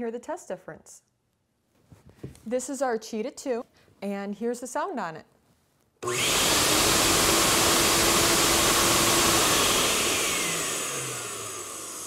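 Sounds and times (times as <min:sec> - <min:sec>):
vacuum motor running: 0:06.0 - 0:12.0.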